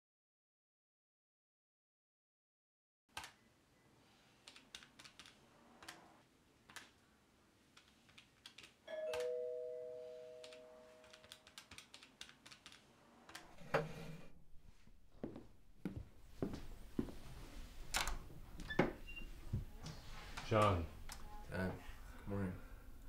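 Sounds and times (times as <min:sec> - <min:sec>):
two-tone doorbell chime: 0:08.9 - 0:11.2
calculator keys clicking: 0:10.4 - 0:12.8.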